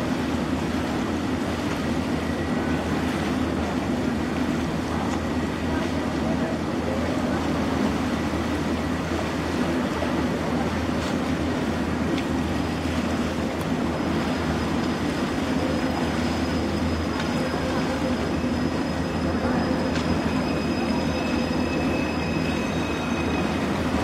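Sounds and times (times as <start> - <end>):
faint high squeal: 15.6 - 24.0.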